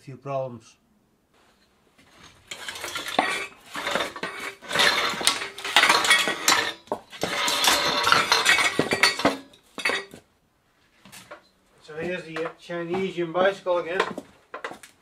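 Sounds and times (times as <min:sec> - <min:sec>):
metal bicycle parts clattering: 0:02.1 - 0:10.2, 0:11.1 - 0:11.5, 0:12.2 - 0:15.0.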